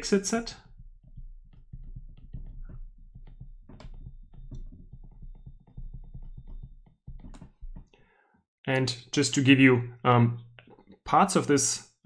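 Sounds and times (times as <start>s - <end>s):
stylus tapping on a tablet: 0.3s - 8.0s.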